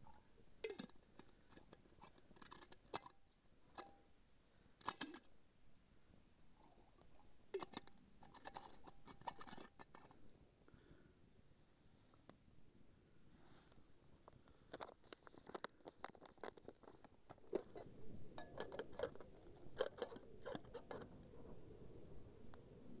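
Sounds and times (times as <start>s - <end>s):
twigs crackling in wood stove: 14.7s - 17.8s
metal bottle and pot clinking: 18.4s - 19.2s.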